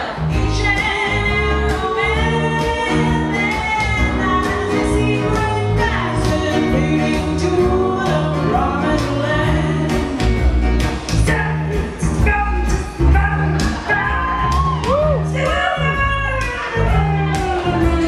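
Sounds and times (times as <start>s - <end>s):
woman singing: 0.0s - 10.6s
bass notes: 0.0s - 18.0s
drums: 0.0s - 18.0s.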